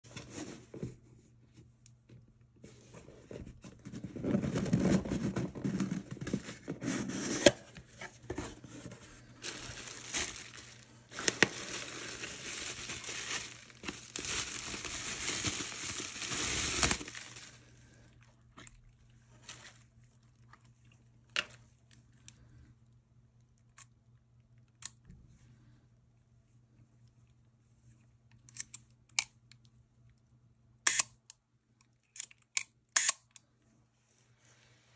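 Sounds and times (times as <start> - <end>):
bubble wrap crinkling: 8.2 - 18.1, 19.3 - 20.3
bubble wrap snaps: 9.4 - 17.6
lens handling clicks: 32.2 - 33.4.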